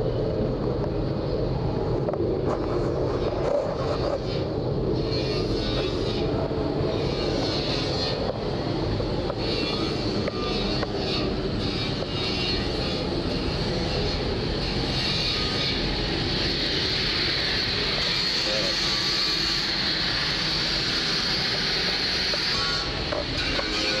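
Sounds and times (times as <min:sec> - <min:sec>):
machinery droning: 0:00.0 - 0:24.0
camera rubbing against clothing: 0:02.4 - 0:06.3.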